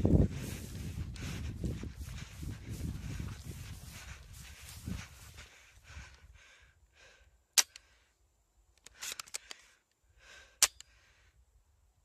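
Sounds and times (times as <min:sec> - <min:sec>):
rustling through tall grass: 0:00.0 - 0:06.3
smaller gun cracks: 0:07.5 - 0:07.9
airsoft gun snaps: 0:07.6 - 0:07.9.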